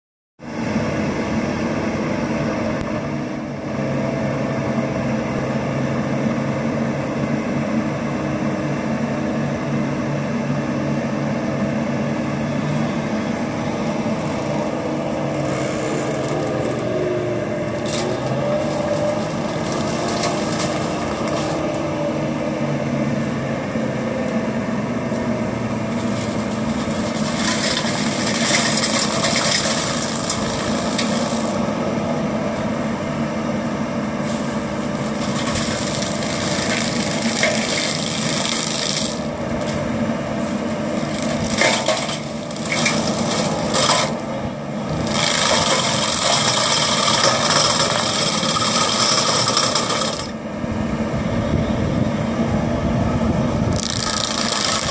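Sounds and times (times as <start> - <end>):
diesel engine running: 0.4 - 54.9
flail mower cutting brush: 17.7 - 22.0, 25.8 - 31.7, 34.2 - 50.4, 53.7 - 54.9.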